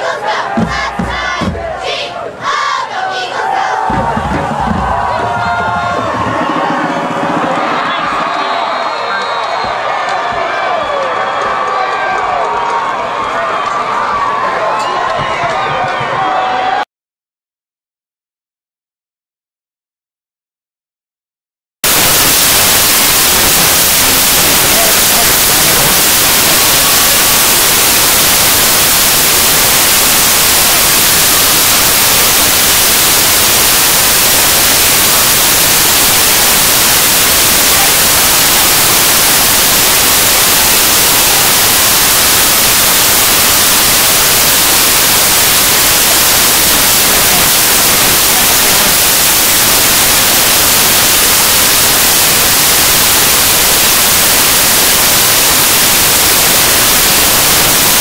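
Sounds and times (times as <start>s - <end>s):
static hiss: 21.8s - 58.0s.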